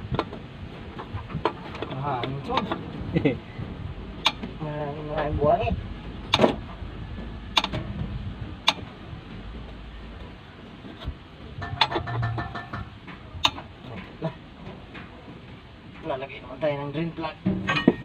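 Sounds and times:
metallic clicks and taps of tools: 7.6s - 7.8s, 11.7s - 13.6s.

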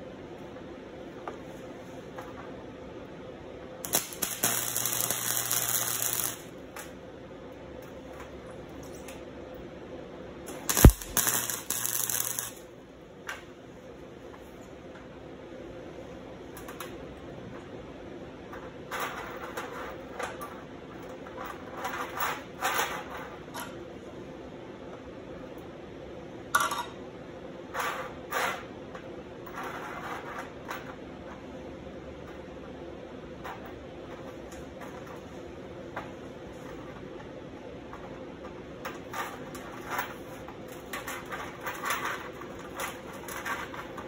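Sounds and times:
welding arc crackling: 3.8s - 6.9s, 10.5s - 12.7s.

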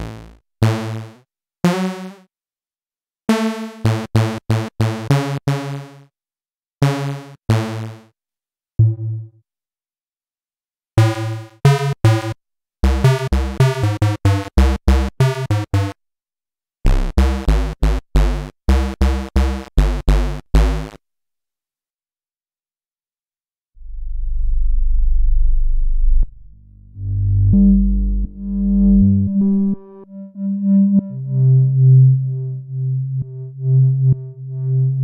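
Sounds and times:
buzzy low synthesizer notes: 16.9s - 21.0s, 23.8s - 35.0s.

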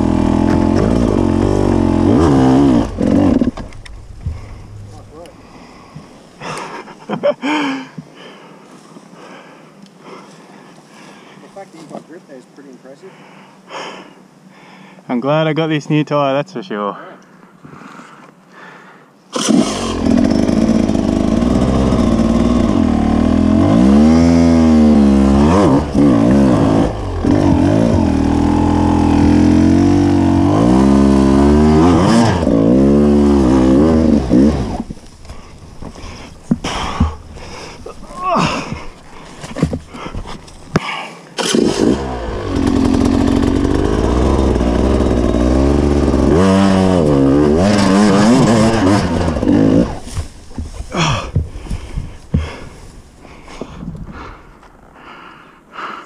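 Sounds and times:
dirt bike engine revving: 0.0s - 6.0s, 19.4s - 40.8s, 41.4s - 51.2s.

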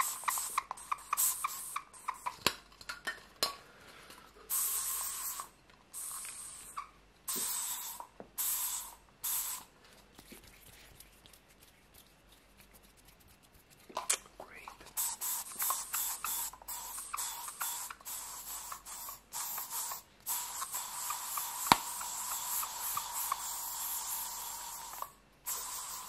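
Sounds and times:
aerosol spray hissing: 0.0s - 2.3s, 4.5s - 9.7s, 15.0s - 26.0s.

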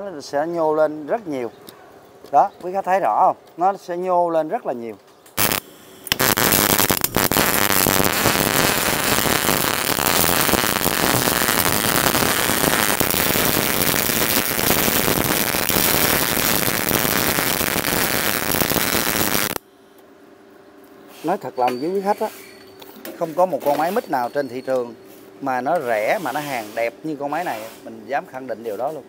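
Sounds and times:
welding arc crackling: 5.4s - 19.6s.

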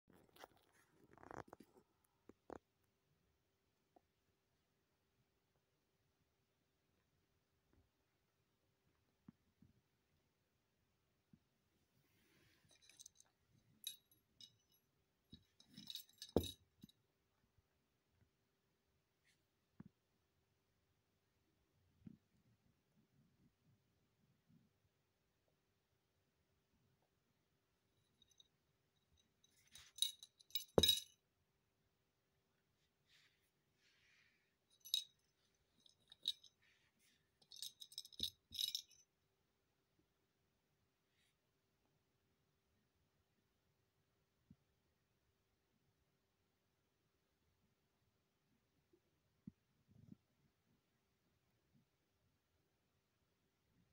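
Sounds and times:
rattle ball toy jingling: 29.6s - 31.1s, 34.8s - 35.1s, 35.8s - 36.5s, 37.4s - 39.0s.

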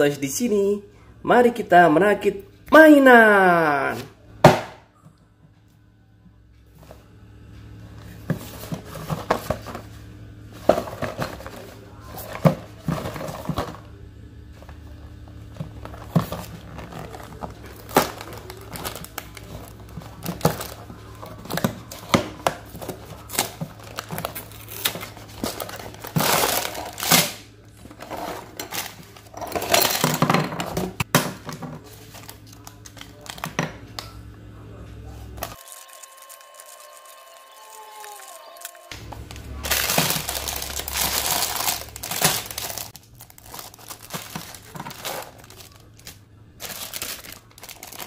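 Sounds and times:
plastic bags crinkling: 15.7s - 27.3s, 35.4s - 48.0s.

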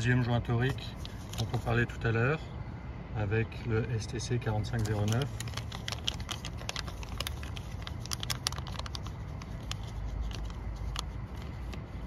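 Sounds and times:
low steady rumble: 0.0s - 12.0s
plastic bag crinkling: 4.7s - 12.0s.

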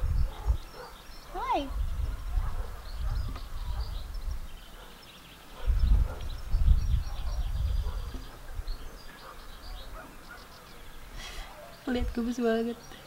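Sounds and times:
low rumbles on microphone: 0.0s - 4.6s, 5.6s - 9.0s
small birds chirping: 0.0s - 13.0s.

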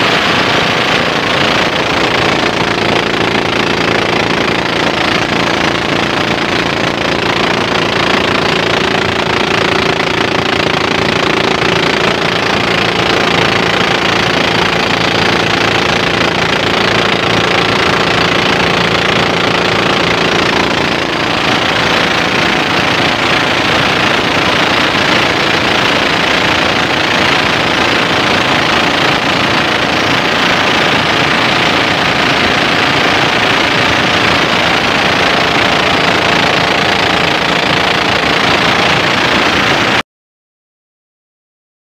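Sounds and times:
boat engine running: 0.0s - 40.0s
water rushing along hull: 0.0s - 40.0s.

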